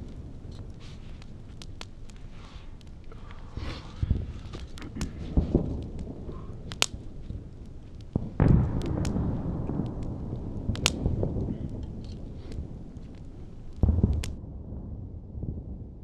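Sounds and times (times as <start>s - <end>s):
campfire crackling and popping: 0.0s - 16.0s.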